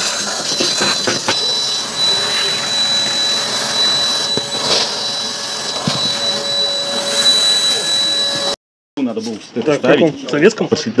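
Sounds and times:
vacuum cleaner whine: 0.0 - 8.6.

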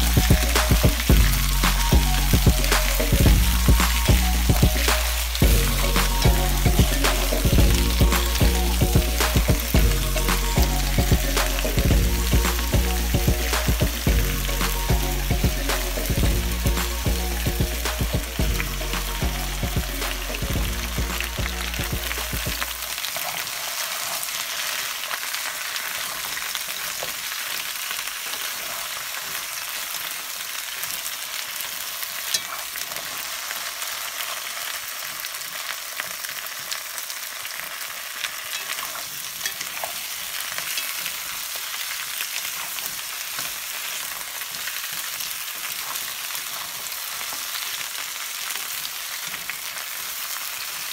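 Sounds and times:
melody: 0.0 - 22.8
vegetables sizzling in hot oil: 0.0 - 50.9.

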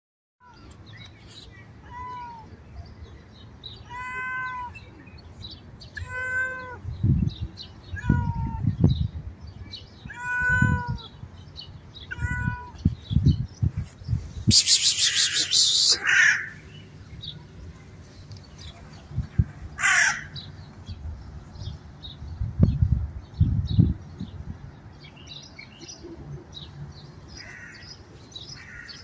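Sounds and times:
cat meowing: 3.9 - 4.8, 10.1 - 11.1, 12.1 - 12.8.

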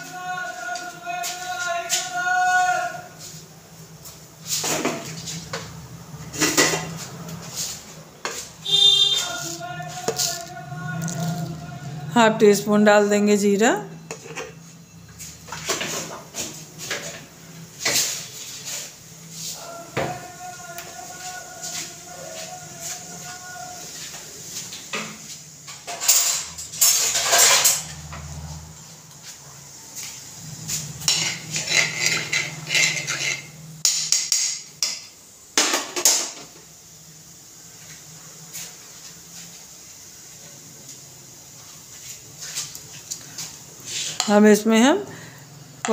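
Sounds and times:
metal spoon scraping a pan: 31.0 - 34.5.

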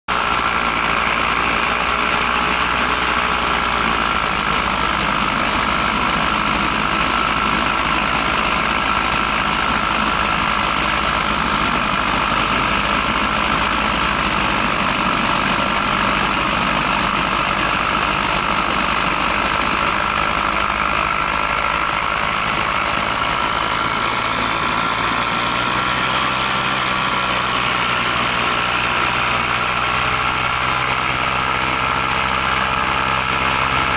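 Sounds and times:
paramotor engine drone: 0.1 - 33.9.

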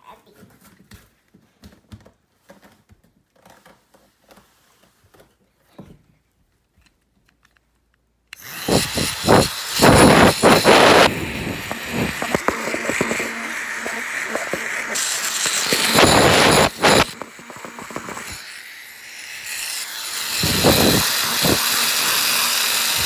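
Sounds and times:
toy blow dryer motor whirring: 8.3 - 23.0.

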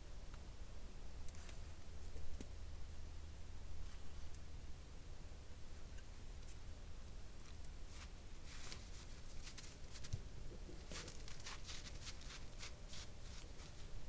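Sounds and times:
paws crunching in snow: 7.4 - 10.2, 10.8 - 14.0.

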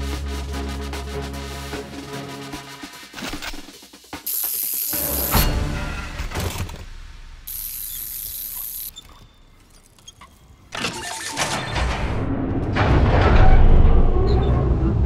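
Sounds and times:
steady hiss: 4.2 - 5.4, 7.4 - 8.9
ratcheting clicks: 4.3 - 5.4, 7.5 - 9.1
mechanical burst: 7.5 - 8.9
mechanical whirring: 7.5 - 9.1.

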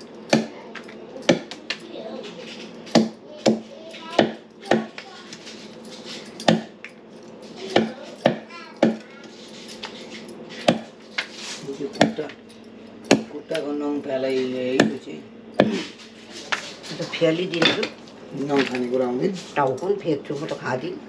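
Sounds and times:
knife chopping into wood: 0.3 - 0.6, 2.9 - 5.0, 6.4 - 6.8, 7.7 - 9.0, 10.6 - 10.9, 13.1 - 13.3, 15.6 - 16.0.

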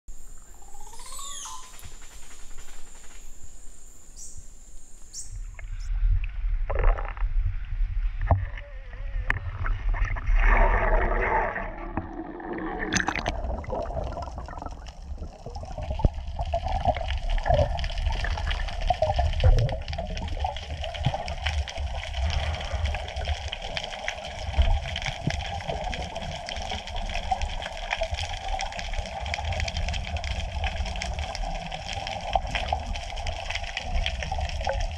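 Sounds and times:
steady hum: 0.1 - 6.0
underwater rumble and sloshing: 5.5 - 34.9.

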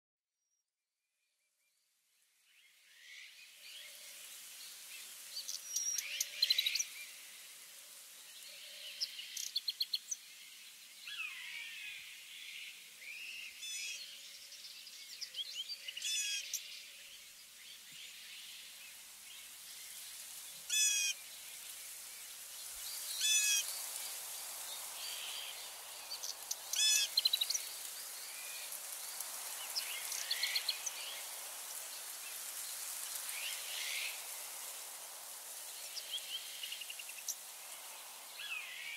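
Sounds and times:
faint high hiss: 2.0 - 38.9
birds chirping and trilling: 24.8 - 31.3.

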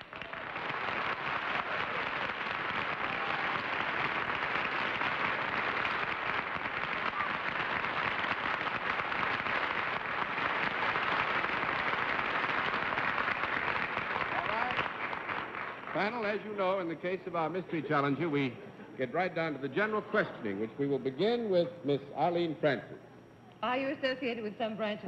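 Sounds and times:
audience applauding: 0.0 - 18.6.

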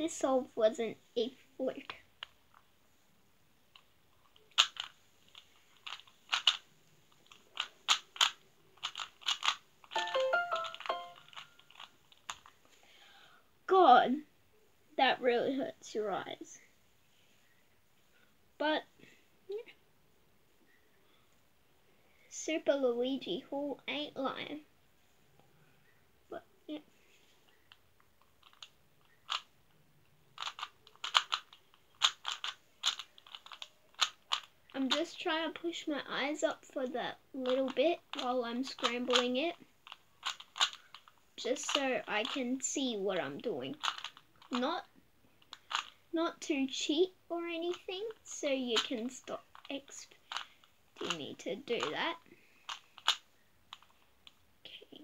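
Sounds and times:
plastic cube clicking: 3.7 - 6.6, 7.2 - 12.5, 27.5 - 29.5, 30.4 - 34.5, 37.4 - 42.4, 43.7 - 44.7, 45.4 - 46.0, 48.8 - 51.9, 52.7 - 54.4.

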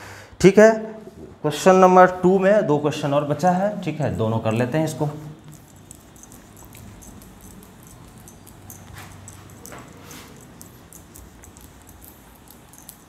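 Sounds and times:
faint low hum: 3.6 - 13.0
duster swishing on whiteboard: 4.6 - 13.0.

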